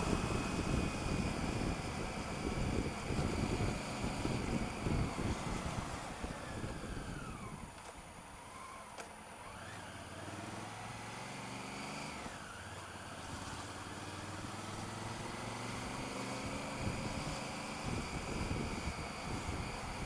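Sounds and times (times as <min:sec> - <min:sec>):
wind rumble on microphone: 0:00.0 - 0:07.8, 0:16.2 - 0:20.0
motorcycle engine at low revs: 0:00.0 - 0:20.0.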